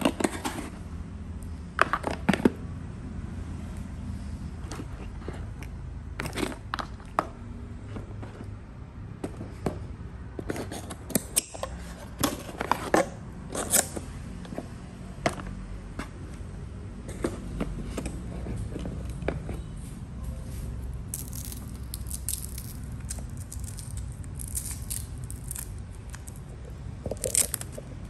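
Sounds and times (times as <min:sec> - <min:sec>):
laptop and cable handled in box: 0:00.0 - 0:00.9, 0:10.4 - 0:19.8.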